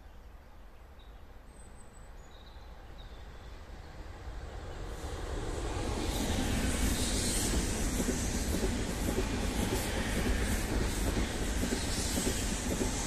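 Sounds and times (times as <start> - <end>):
train wheels rumbling on rails: 3.7 - 13.0.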